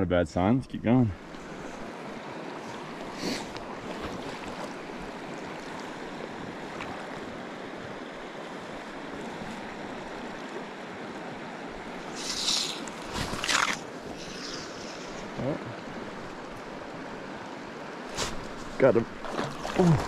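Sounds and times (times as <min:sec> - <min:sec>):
river water rushing over rocks: 0:01.2 - 0:20.0.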